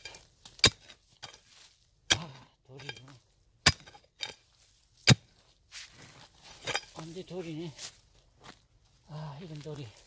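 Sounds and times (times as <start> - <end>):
pickaxe striking stony soil: 0.0 - 1.5, 2.1 - 4.4, 5.0 - 5.3, 6.5 - 7.0.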